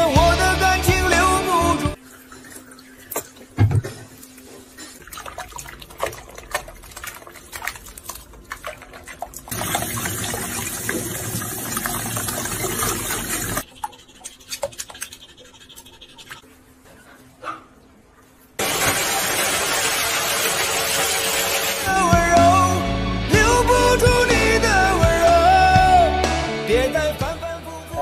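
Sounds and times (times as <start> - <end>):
water splashing in sink: 2.0 - 15.6.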